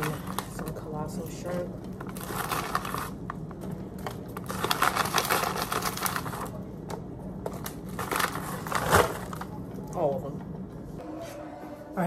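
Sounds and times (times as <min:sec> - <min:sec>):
plastic bag crinkling: 0:02.0 - 0:03.4, 0:04.0 - 0:06.6.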